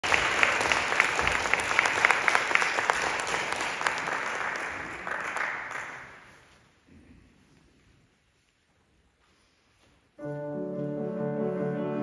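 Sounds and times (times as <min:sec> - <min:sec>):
small audience applauding: 0:00.0 - 0:06.5.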